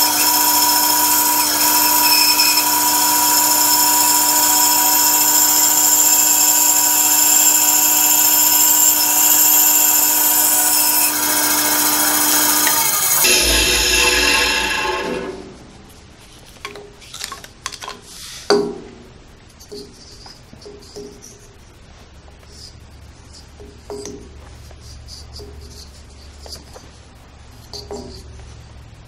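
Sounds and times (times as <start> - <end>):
blade cutting wood: 0.0 - 15.7
bandsaw whine: 0.0 - 15.9.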